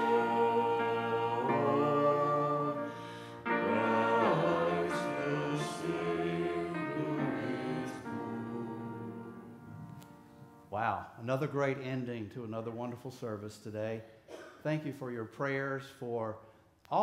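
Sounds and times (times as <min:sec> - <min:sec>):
voices singing a hymn: 0:00.0 - 0:10.6.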